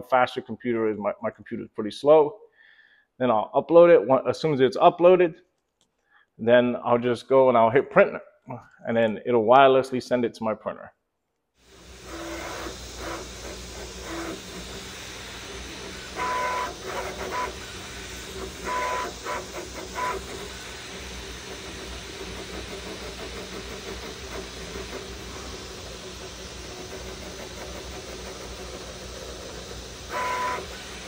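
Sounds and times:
stepper motors whining: 11.7s - 31.0s
cooling fans whirring: 11.8s - 31.0s.

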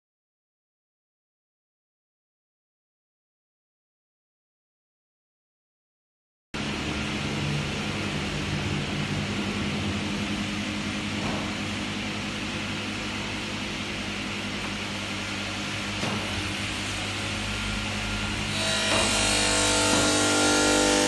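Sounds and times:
workshop machinery humming: 6.6s - 21.0s.

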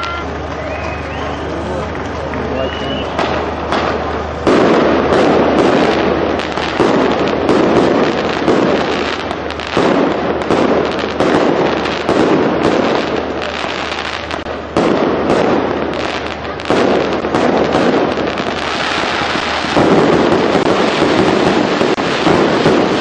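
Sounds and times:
smaller firework reports: 0.0s - 23.0s
firework shells bursting: 3.1s - 23.0s.

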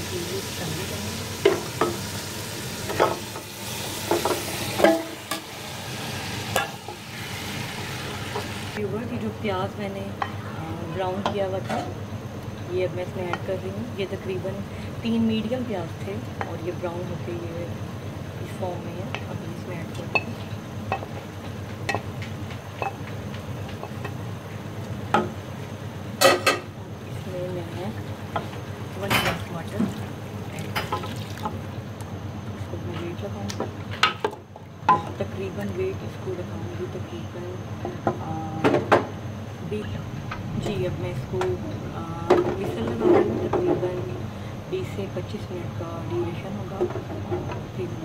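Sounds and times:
hot oil sizzling: 0.0s - 9.3s, 18.4s - 32.1s
steady low hum: 0.0s - 48.0s.

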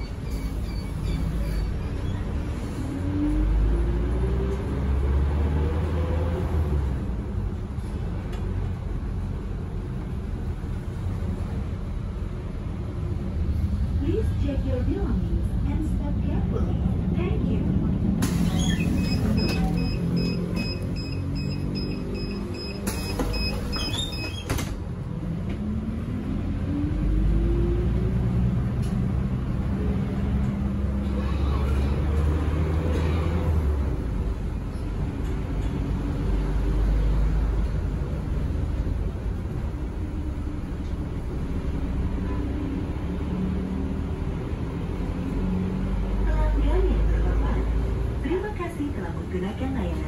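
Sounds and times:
bus engine running: 0.0s - 50.0s
door warning beeper: 18.8s - 24.4s.

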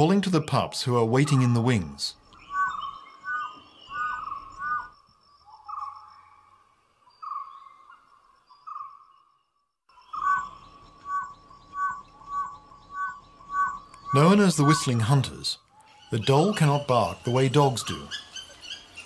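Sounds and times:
dholes whistling: 0.0s - 6.1s, 9.9s - 19.0s.

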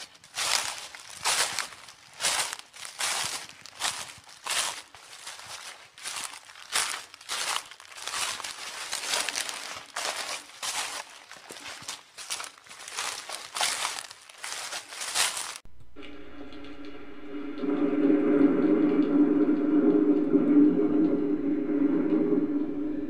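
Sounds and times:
footsteps crunching dry leaves: 0.0s - 16.0s
steady musical tone: 15.7s - 23.0s.

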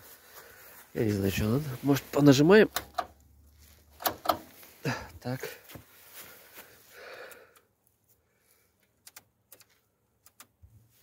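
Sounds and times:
soft breath: 0.1s - 0.9s, 4.8s - 8.8s
plastic switches clicking: 9.0s - 10.6s.

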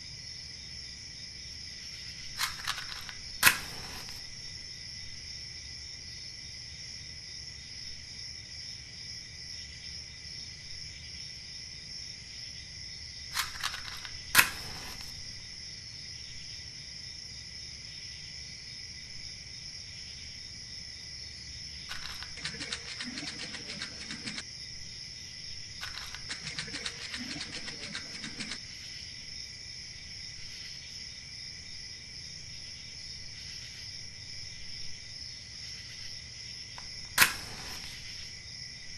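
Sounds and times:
crickets chirring: 0.0s - 38.9s
sharp clicks: 2.2s - 4.2s, 13.4s - 15.1s, 21.9s - 24.4s, 25.8s - 28.6s, 36.8s - 38.1s
fine rapid clicking and rustling: 21.9s - 24.4s, 25.8s - 28.6s.

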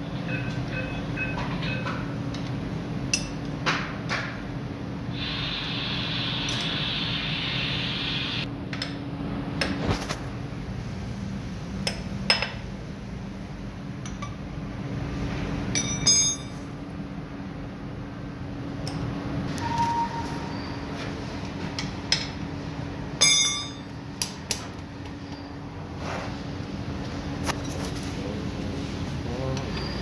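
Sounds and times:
steady low hum: 0.0s - 30.0s
hiss: 5.1s - 8.5s
ringing metal clank: 15.7s - 16.6s, 23.2s - 23.9s
steel tools clinking on metal: 23.2s - 23.9s.

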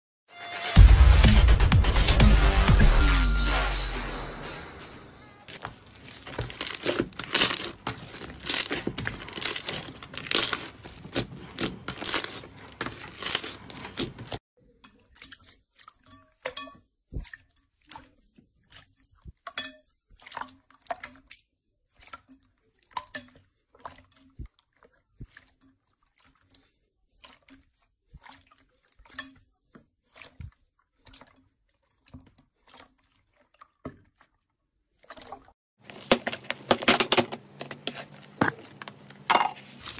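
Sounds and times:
slime crackling and popping: 5.5s - 14.4s
slime squelching: 5.5s - 16.5s, 17.1s - 39.9s.

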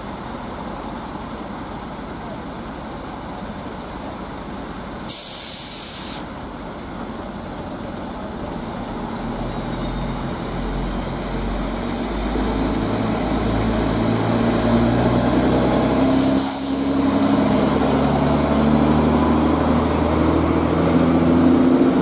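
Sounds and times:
diesel engine drone: 0.0s - 22.0s
air release hiss: 5.1s - 6.4s, 16.0s - 17.1s.

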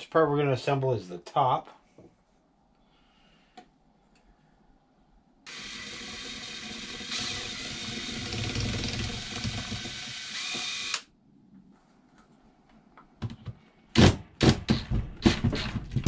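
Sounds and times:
cordless drill running: 5.5s - 11.1s.

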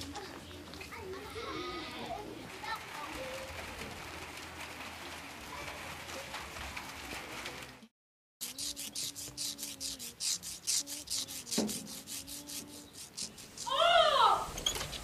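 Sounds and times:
rhythmic rasping: 8.4s - 13.8s.

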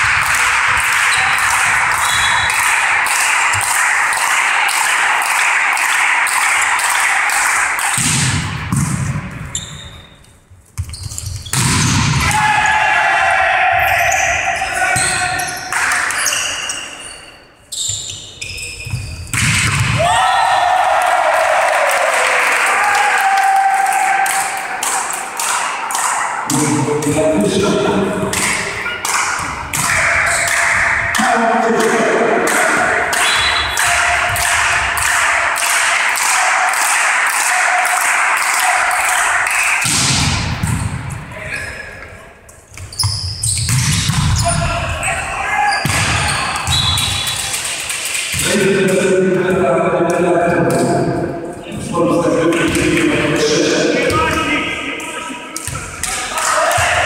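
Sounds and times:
rhythmic clapping: 0.0s - 8.0s, 23.8s - 27.5s, 28.3s - 39.9s, 47.0s - 49.1s, 52.4s - 57.0s
volleyball being hit: 7.8s - 9.4s, 11.5s - 12.4s, 19.3s - 20.1s, 39.8s - 41.2s
shoes squeaking on court: 9.4s - 11.6s, 15.0s - 19.4s, 42.6s - 47.4s
crowd cheering and shouting: 12.2s - 15.6s, 19.9s - 40.0s, 44.4s - 47.5s, 53.0s - 57.0s.

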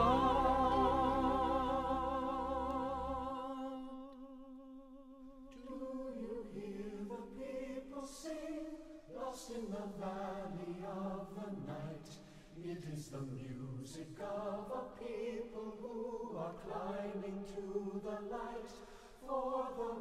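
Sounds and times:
held sung chord with vibrato: 0.0s - 4.0s
choir singing softly: 0.0s - 20.0s.

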